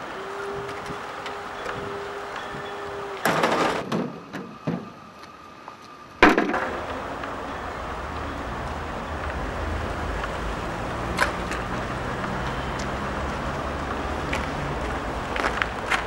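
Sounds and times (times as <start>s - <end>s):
car engine rumble: 0.0s - 16.0s
street traffic: 0.0s - 16.0s
footsteps: 13.8s - 16.0s.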